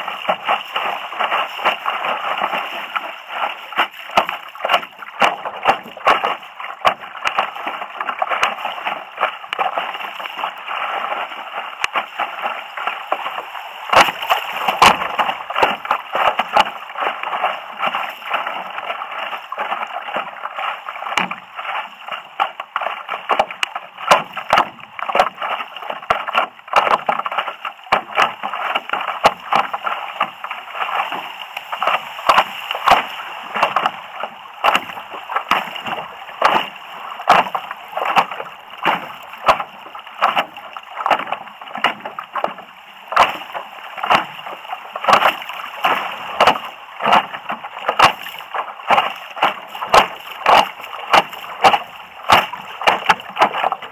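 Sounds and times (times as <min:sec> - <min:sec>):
water slapping against paddleboard: 0:00.0 - 0:53.9.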